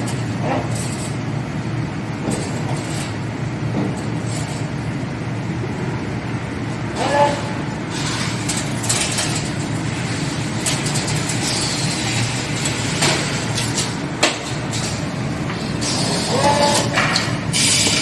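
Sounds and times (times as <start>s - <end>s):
machine clatter: 2.2s - 4.8s, 7.3s - 18.0s
pneumatic air hissing: 17.5s - 18.0s.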